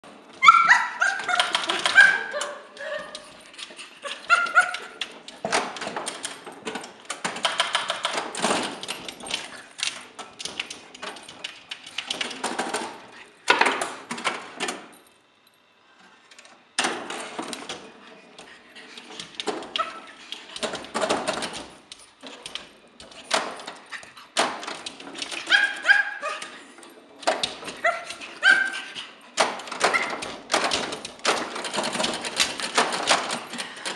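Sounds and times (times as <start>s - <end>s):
dog barking and yelping: 0.3s - 5.0s, 25.2s - 26.7s, 27.7s - 29.2s
pinball machine clacking: 1.2s - 3.6s, 4.2s - 14.9s, 19.1s - 33.9s.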